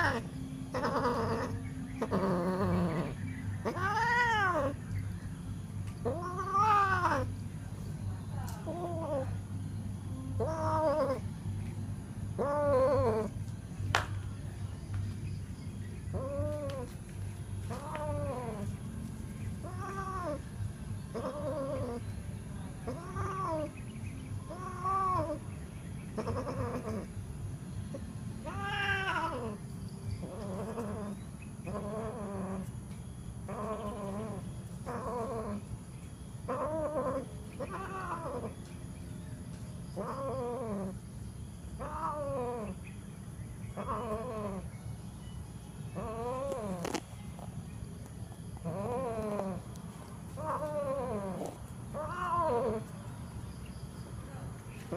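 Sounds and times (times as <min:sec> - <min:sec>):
cat yowling: 0:00.0 - 0:04.8, 0:06.0 - 0:07.3, 0:08.6 - 0:09.4, 0:10.4 - 0:11.2, 0:12.4 - 0:13.3, 0:16.1 - 0:16.9, 0:17.7 - 0:18.7, 0:19.6 - 0:20.4, 0:21.1 - 0:22.0, 0:22.8 - 0:23.7, 0:24.5 - 0:25.4, 0:26.2 - 0:27.1, 0:28.4 - 0:29.6, 0:30.2 - 0:31.1, 0:31.7 - 0:32.7, 0:33.5 - 0:35.6, 0:36.5 - 0:38.6, 0:40.0 - 0:41.0, 0:41.8 - 0:42.8, 0:43.8 - 0:44.7, 0:46.0 - 0:47.0, 0:48.6 - 0:49.6, 0:50.4 - 0:52.9
low steady rumble: 0:00.0 - 0:37.6.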